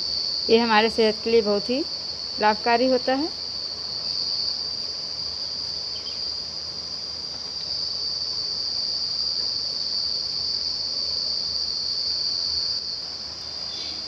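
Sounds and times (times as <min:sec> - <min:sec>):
faint hiss: 0:00.0 - 0:14.0.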